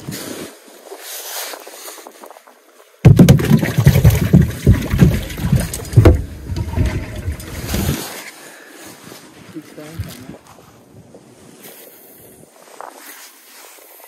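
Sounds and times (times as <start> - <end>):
wind buffeting microphone: 3.2 - 8.1.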